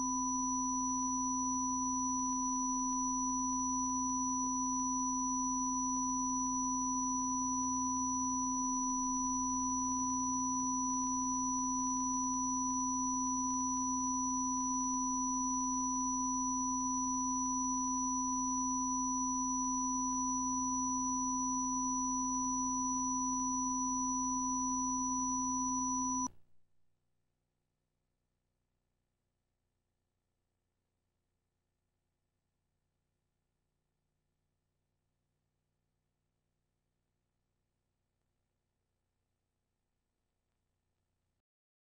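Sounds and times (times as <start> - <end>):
steady sine test tones: 0.0 - 26.4.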